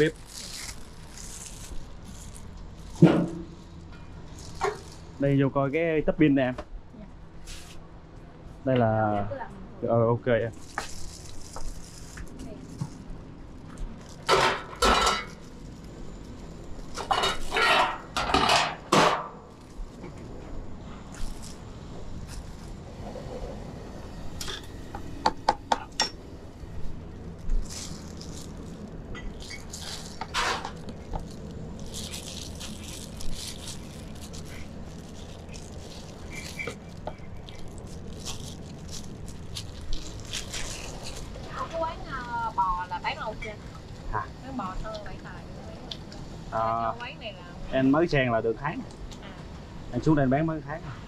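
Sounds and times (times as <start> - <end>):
steady low hum: 0.0 - 51.0
bowls and utensils clanking: 14.3 - 15.4.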